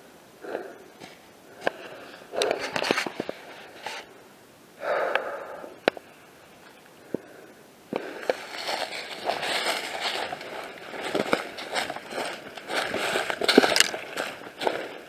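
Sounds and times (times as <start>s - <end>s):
heavy breathing: 0.4s - 4.2s, 4.8s - 5.9s, 7.0s - 15.0s
twigs snapping underfoot: 7.9s - 14.8s
footsteps in dry leaves: 8.0s - 15.0s.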